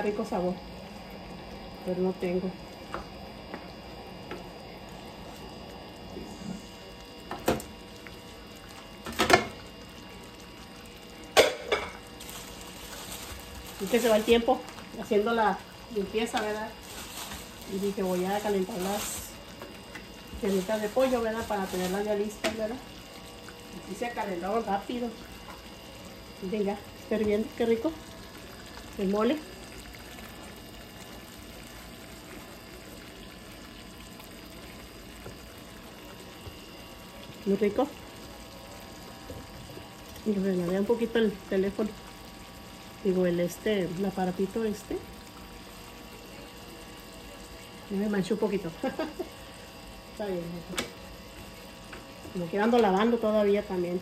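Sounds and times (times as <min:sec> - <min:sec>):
thick sauce bubbles popping: 0:02.7 - 0:12.8, 0:24.8 - 0:43.0.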